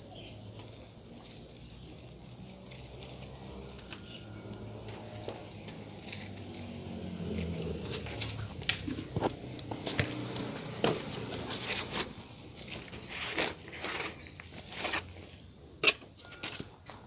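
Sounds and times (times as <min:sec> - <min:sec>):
hands digging in soil: 0:05.3 - 0:15.5.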